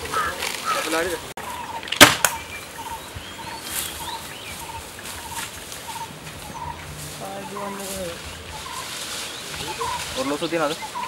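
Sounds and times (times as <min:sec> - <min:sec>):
rising bird chirps: 0:00.1 - 0:11.0
sharp cracks: 0:01.8 - 0:02.4.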